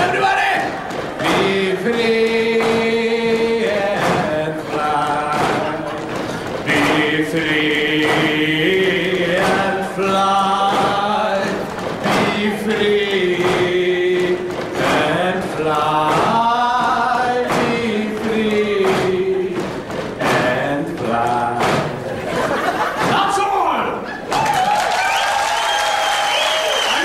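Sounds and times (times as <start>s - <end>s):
stomps on floor: 0.8s - 22.1s
voices singing a slow chant: 1.2s - 22.5s.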